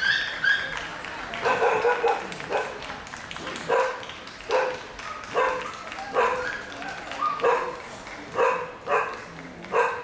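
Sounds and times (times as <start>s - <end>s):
dog barking: 1.4s - 2.8s, 3.7s - 6.5s, 7.2s - 10.0s.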